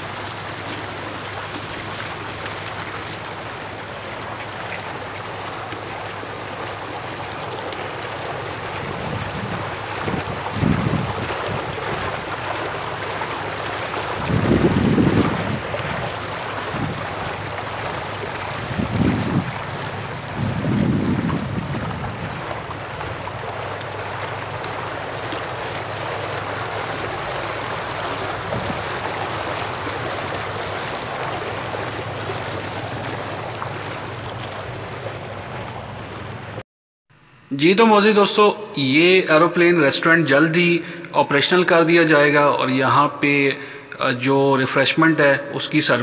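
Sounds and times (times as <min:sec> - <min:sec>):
fountain jets splashing: 0:00.0 - 0:36.6
wind buffeting microphone: 0:08.6 - 0:12.7, 0:13.7 - 0:36.6.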